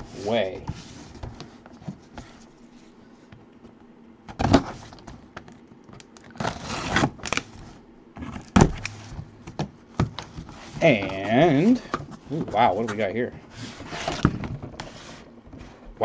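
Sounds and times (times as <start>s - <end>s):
cardboard scraping: 0.0s - 3.0s, 6.3s - 9.4s, 10.1s - 15.9s
gloved hands handling cardboard box: 0.0s - 3.5s, 4.3s - 16.0s.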